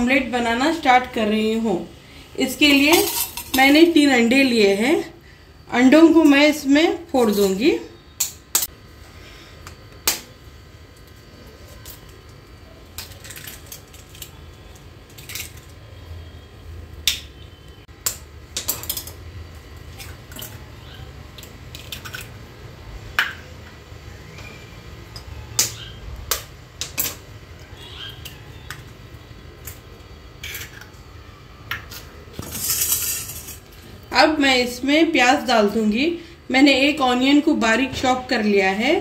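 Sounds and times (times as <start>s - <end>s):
eggshells tapping metal bowl: 2.6s - 4.0s.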